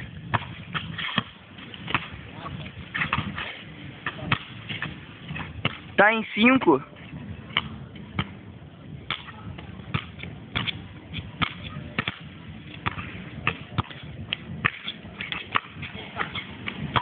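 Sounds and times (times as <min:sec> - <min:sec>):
basketball bouncing on hard court: 0:11.4 - 0:17.0.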